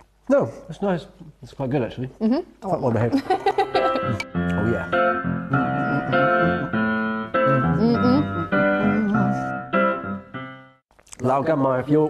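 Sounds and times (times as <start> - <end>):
sustained chords music: 3.8 - 10.7.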